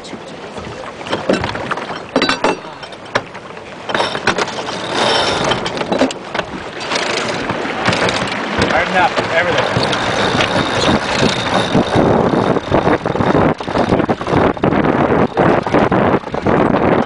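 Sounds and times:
sail rustling: 0:00.0 - 0:17.0
knocks and clicks of deck hardware: 0:01.1 - 0:14.5.

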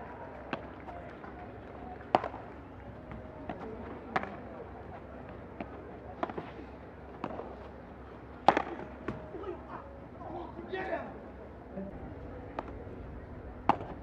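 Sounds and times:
murmur of voices: 0:00.0 - 0:14.0
padel ball hit by rackets: 0:02.1 - 0:02.4, 0:08.5 - 0:09.2, 0:13.6 - 0:14.0.

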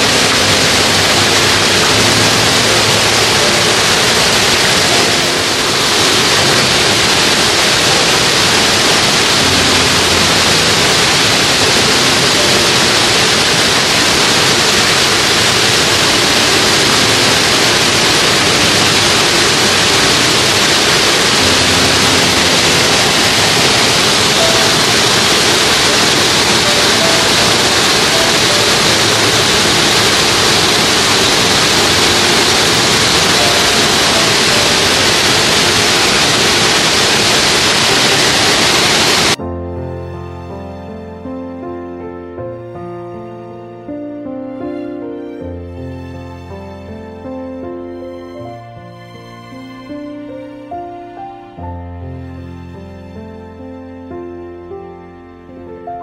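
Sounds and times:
fast-flowing stream water rushing: 0:00.0 - 0:39.4.

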